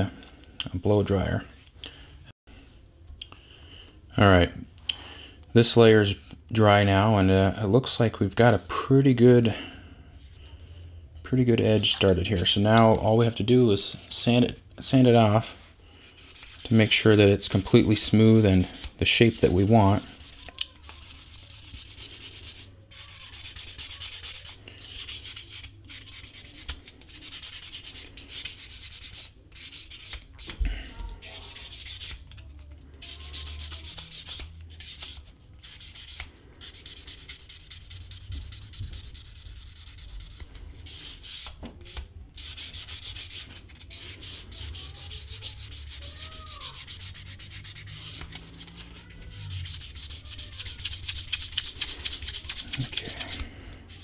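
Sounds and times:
sandpaper rubbing leather edge: 16.2 - 30.6, 31.3 - 32.2, 33.0 - 54.0.

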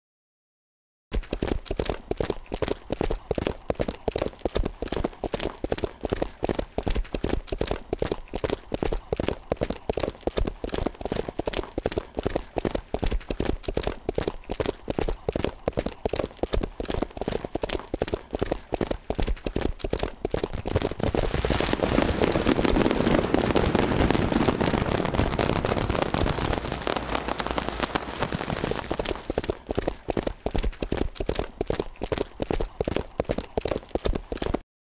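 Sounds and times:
rapid train of clicks: 1.2 - 34.6.

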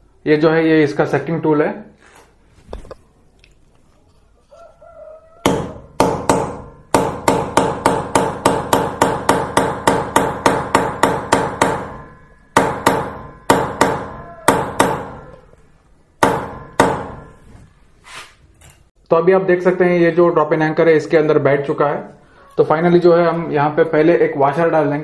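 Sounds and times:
hammer striking metal tool: 5.4 - 15.3, 16.2 - 17.4.

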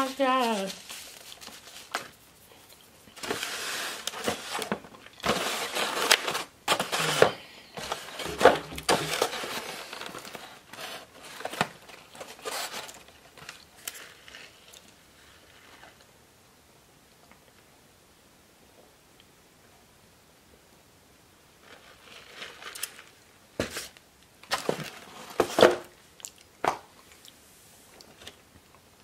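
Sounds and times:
paper and foam container crinkling: 0.0 - 2.5, 3.2 - 14.8, 21.6 - 25.9.

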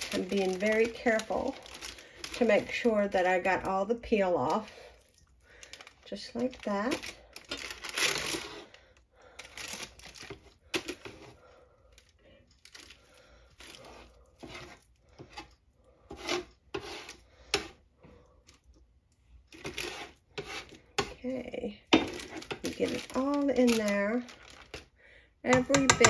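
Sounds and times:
plastic spatula scraping pumpkin: 0.0 - 4.8, 6.1 - 8.8, 9.6 - 11.5, 13.6 - 18.2, 19.5 - 24.8.

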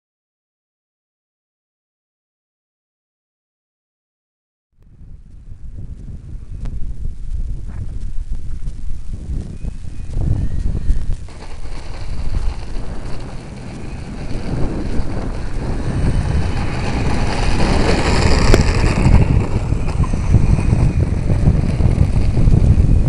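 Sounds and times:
wind buffeting microphone: 4.8 - 23.0.

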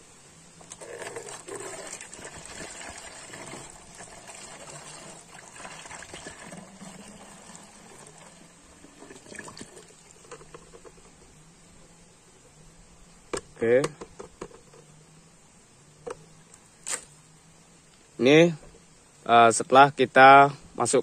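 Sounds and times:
liquid pouring into plastic bottle: 0.6 - 10.8.

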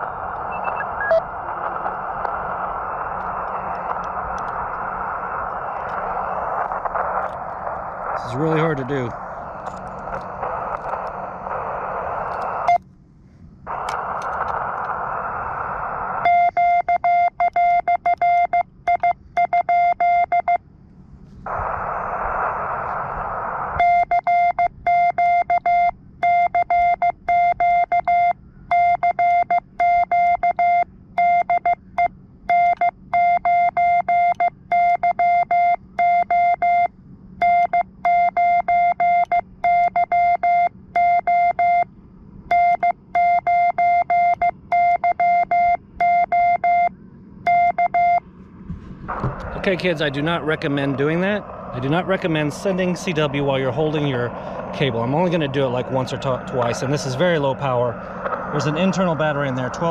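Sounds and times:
receiver hiss: 0.0 - 19.6, 20.2 - 28.9, 31.5 - 59.9
morse code beeping: 0.5 - 1.2, 16.2 - 20.6, 23.8 - 41.8, 42.5 - 48.2.

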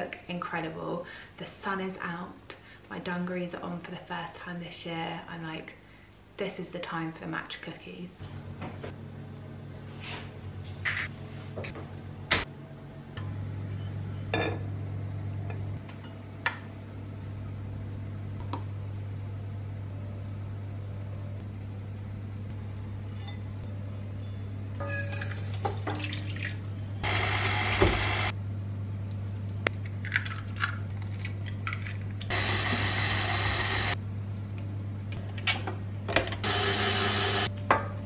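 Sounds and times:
steady low hum: 7.2 - 38.0
utensils clinking: 24.8 - 26.1.

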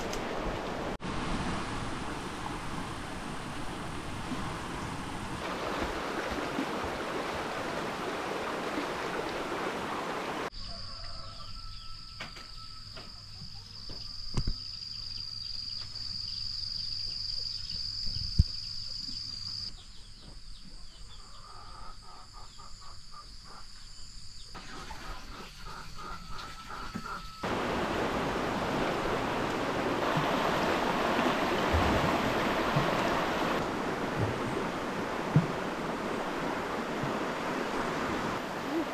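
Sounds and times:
water rushing over rapids: 0.0 - 10.5, 27.4 - 38.9
bird calls: 24.6 - 27.7
steady rushing noise: 27.4 - 38.9.

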